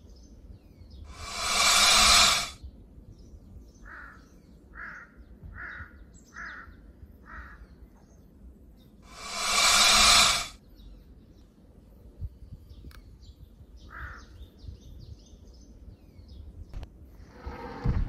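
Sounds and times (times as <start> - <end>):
faint bird chirping: 0.0 - 17.8
bird calling: 1.1 - 2.6, 9.1 - 10.6
loud hiss: 1.1 - 2.6, 9.0 - 10.6.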